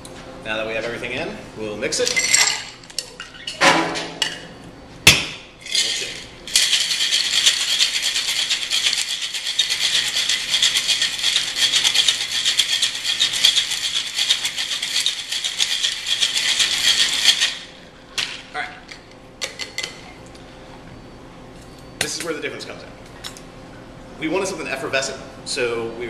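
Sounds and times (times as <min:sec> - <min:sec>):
ice rattling in a shaker: 0:05.6 - 0:17.7.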